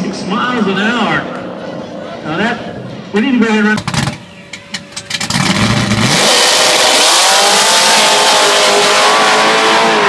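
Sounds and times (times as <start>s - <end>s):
drag car engine revving: 4.9s - 10.0s.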